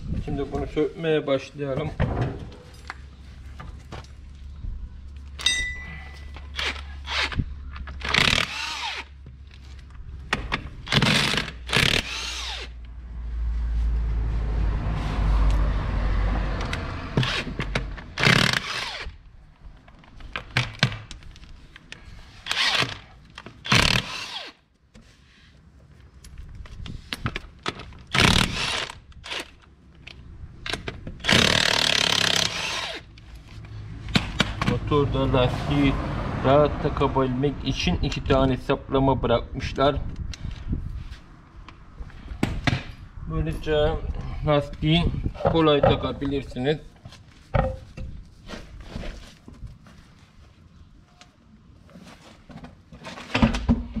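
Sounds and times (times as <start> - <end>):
impact wrench bursts: 8.0 - 9.1, 10.9 - 12.7, 18.2 - 19.2, 22.4 - 24.6, 28.1 - 29.5, 31.2 - 33.1
tools knocking: 47.6 - 48.1.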